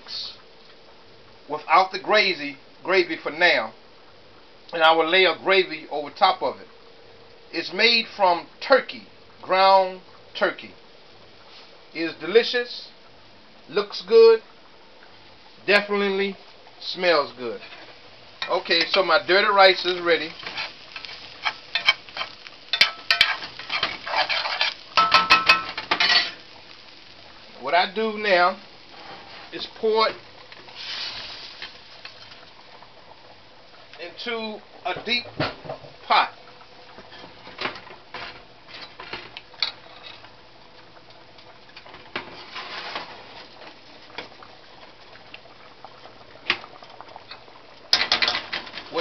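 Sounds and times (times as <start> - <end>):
pot of rice boiling: 0.0 - 49.0
spoon scraping rice in skillet: 20.4 - 26.4.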